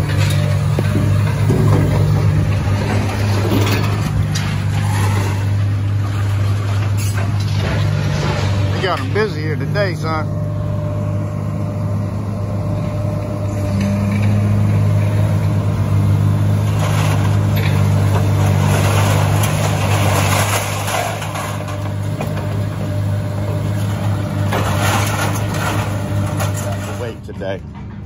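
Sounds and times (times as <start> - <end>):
rattling clattering noise: 0.0 - 10.4
excavator diesel engine running: 0.0 - 28.0.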